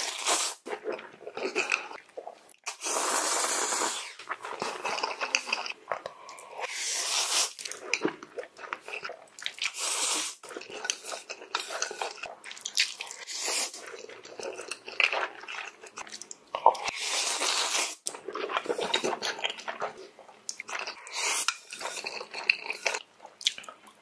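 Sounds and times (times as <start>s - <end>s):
noodle slurping: 2.6s - 5.6s, 6.4s - 8.0s
wet chewing: 7.4s - 24.0s.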